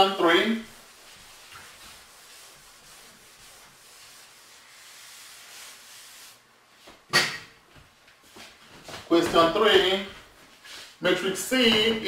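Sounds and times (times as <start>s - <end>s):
eraser rubbing on chalkboard: 0.6s - 6.4s.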